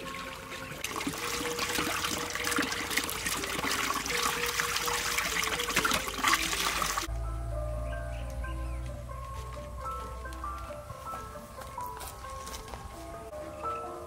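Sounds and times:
water splashing and trickling: 0.0 - 7.2
faint background music: 0.0 - 14.0.

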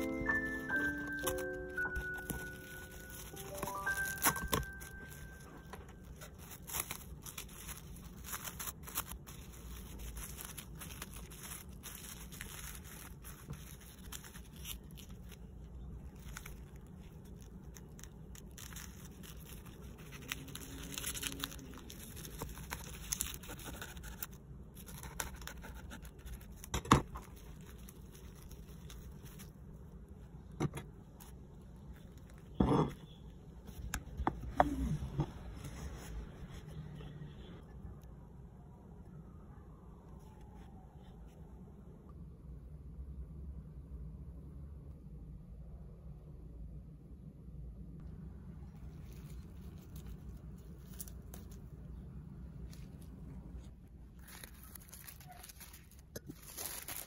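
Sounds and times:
cling film crinkling: 0.0 - 29.8, 48.7 - 57.0.

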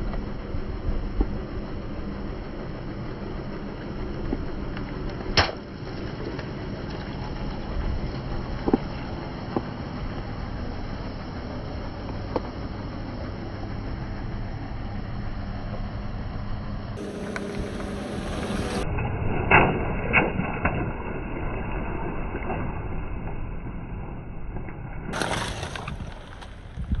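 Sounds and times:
engine and tyre rumble: 0.0 - 27.0
sharp cracks under tyre: 4.3 - 7.3, 25.1 - 27.0.

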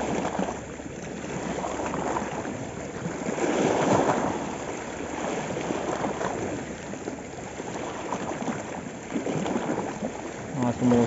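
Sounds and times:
sea waves splashing on rock: 7.7 - 11.0.

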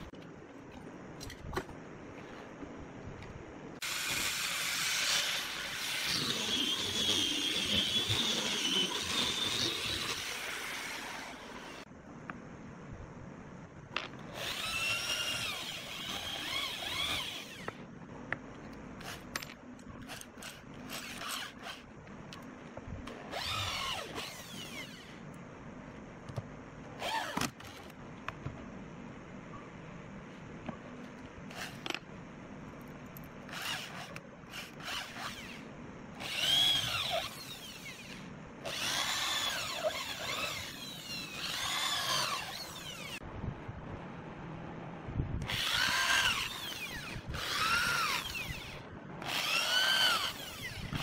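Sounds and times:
electric drill boring into wood: 3.8 - 11.8, 14.3 - 17.8, 23.3 - 25.2, 33.5 - 35.6, 36.2 - 43.2, 45.4 - 51.0.

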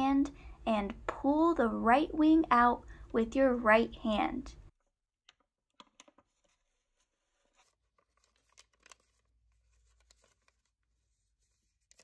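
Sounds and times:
paper crinkling and rustling: 5.8 - 12.0.

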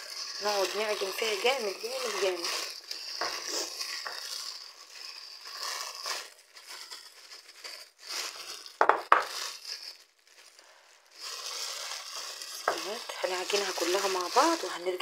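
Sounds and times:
plastic bag crinkling: 0.0 - 15.0.

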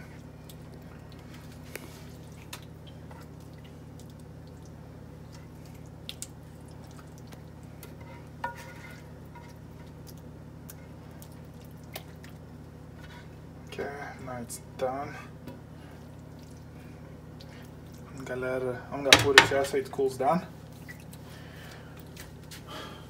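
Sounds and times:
steady low hum: 0.0 - 23.0
spatula scraping sauce from pan: 7.8 - 10.0
spatula knocking pan: 19.1 - 19.8.

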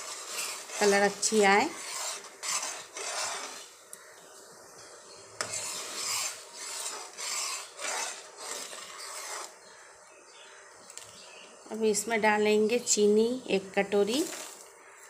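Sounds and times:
spoon scraping pan: 0.0 - 3.8, 4.8 - 9.7.

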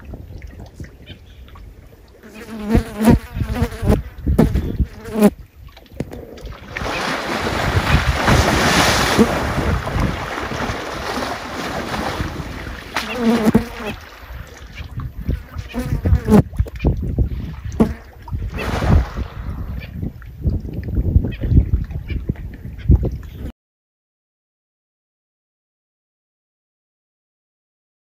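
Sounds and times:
elephant splashing in water: 6.2 - 15.0, 18.4 - 19.7.

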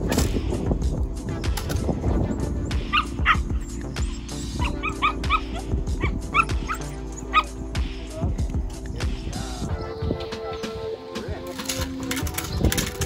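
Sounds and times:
background music: 0.0 - 13.0
puppy yipping: 2.3 - 7.6.

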